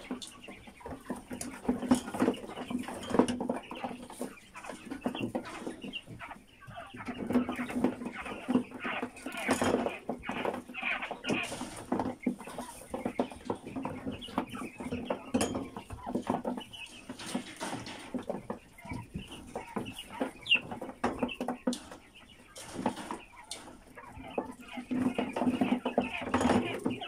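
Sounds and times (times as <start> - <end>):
quail chirping: 0.0 - 27.0
wire mesh rattling: 15.1 - 18.4.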